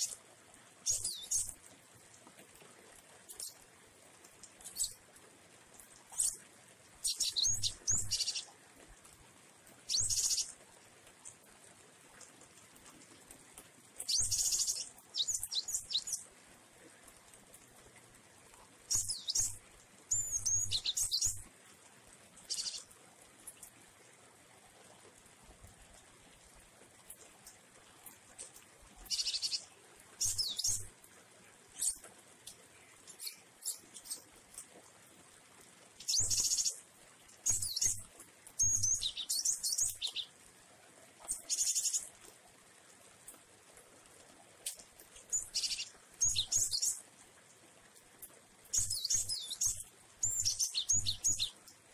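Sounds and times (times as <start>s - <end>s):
bird chirping and trilling: 0.9s - 1.5s, 7.0s - 8.4s, 9.9s - 10.5s, 14.1s - 16.2s, 18.9s - 21.4s, 22.5s - 22.8s, 30.2s - 30.8s, 45.3s - 46.9s, 48.8s - 51.5s.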